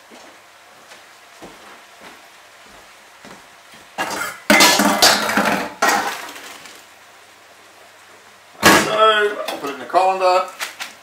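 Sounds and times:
metal pot clattering in colander: 4.5 - 6.2.

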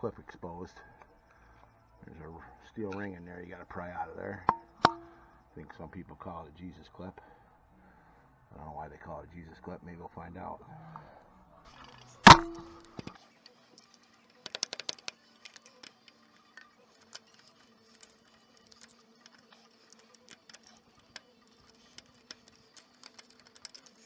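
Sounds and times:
faint steady hum: 0.0 - 24.0
hand tools tapping: 4.5 - 5.2, 12.3 - 13.2
metallic clang on steel: 4.5 - 5.2, 12.2 - 13.2.

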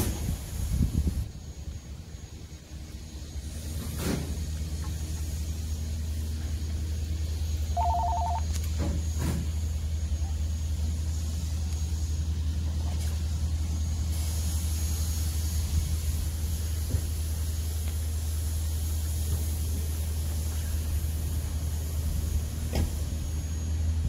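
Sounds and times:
two-tone electronic ring: 7.8 - 8.4
steady low rumble: 9.4 - 24.0.

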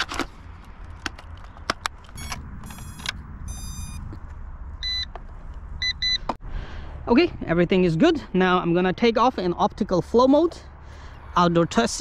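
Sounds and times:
handling clicks and knocks: 0.0 - 2.2
wind rumble on microphone: 1.4 - 6.2
short electronic beeps: 2.2 - 4.1, 4.8 - 5.1, 5.8 - 6.3.

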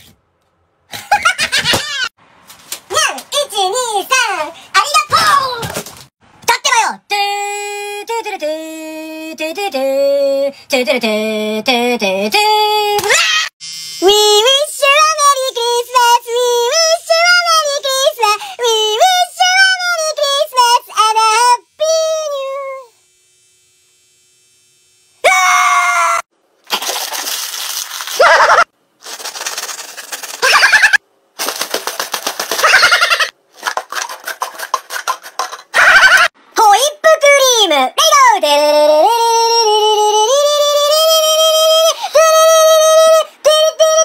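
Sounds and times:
high-pitched voice singing: 6.5 - 22.9, 36.0 - 44.0.

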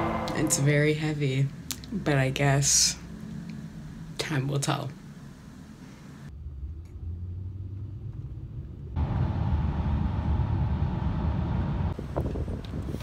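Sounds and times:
faint steady hum: 0.0 - 6.4
car interior road and engine noise: 0.7 - 12.7.

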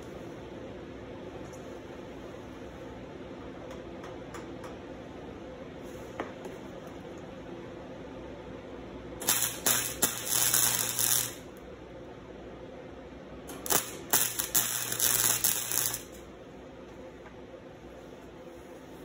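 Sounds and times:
low steady hum: 0.0 - 19.0
welding arc crackling: 9.2 - 11.6, 13.5 - 16.3.

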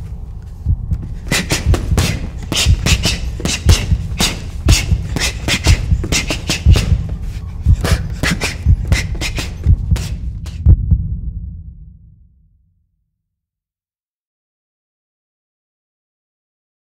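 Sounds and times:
low steady throb: 0.0 - 12.8
boxing punches: 0.9 - 10.7.

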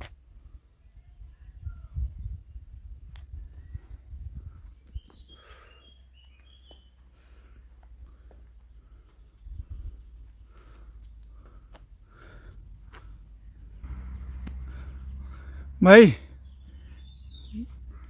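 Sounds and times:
insects trilling: 0.0 - 18.0
bird chirps: 4.7 - 7.1, 16.3 - 18.0.

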